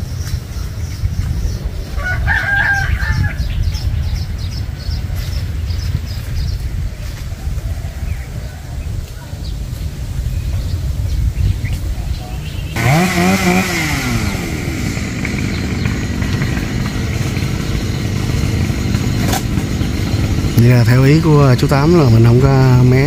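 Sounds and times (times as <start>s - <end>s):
wind rumble on microphone: 0.0s - 23.0s
rooster crowing: 1.9s - 3.8s.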